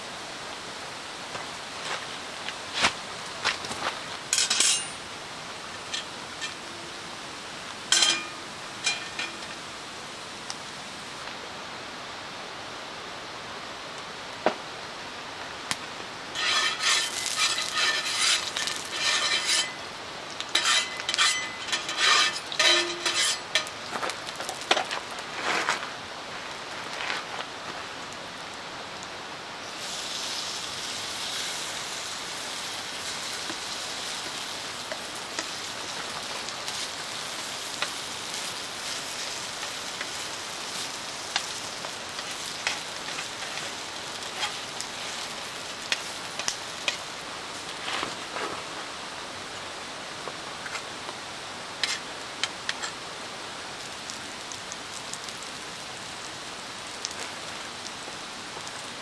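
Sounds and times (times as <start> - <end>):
wood fire crackling: 0.5 - 59.0
batter sizzling in hot pan: 15.7 - 47.3, 53.8 - 59.0
spatula scraping in frying pan: 16.4 - 23.8, 29.8 - 47.2.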